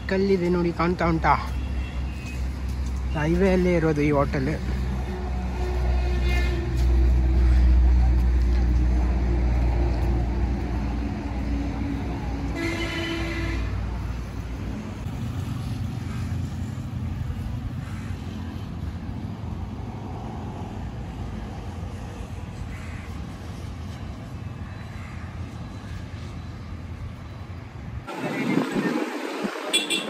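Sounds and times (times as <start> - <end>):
vehicle horn honking: 12.5 - 13.8, 29.7 - 30.0.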